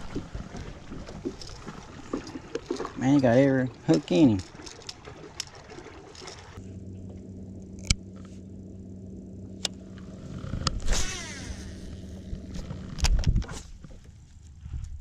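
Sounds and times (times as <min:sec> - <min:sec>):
electric trolling motor humming: 0:03.8 - 0:14.7.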